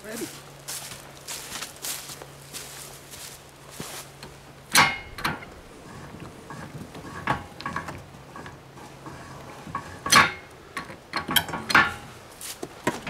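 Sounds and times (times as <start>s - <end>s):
sharp knocks: 4.7s - 8.0s.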